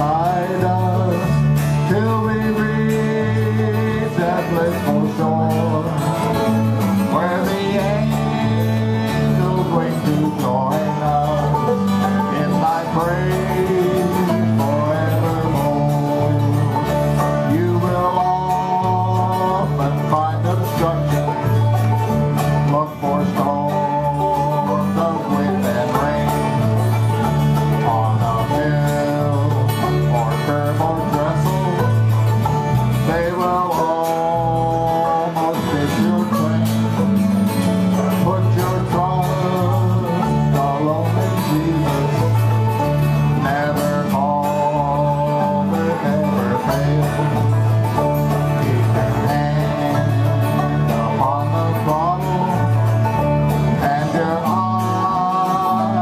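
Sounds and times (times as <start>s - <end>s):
banjo: 0.0s - 56.0s
electric bass guitar: 0.0s - 56.0s
strummed acoustic guitar: 0.0s - 56.0s.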